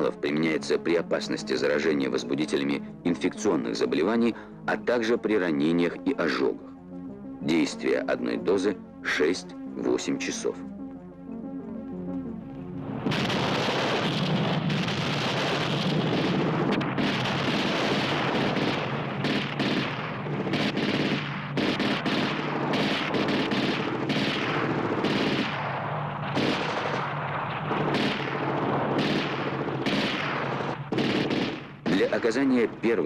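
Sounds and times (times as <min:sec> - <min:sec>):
explosions: 0:12.8 - 0:32.4
automatic gunfire: 0:13.1 - 0:27.1, 0:27.7 - 0:32.4.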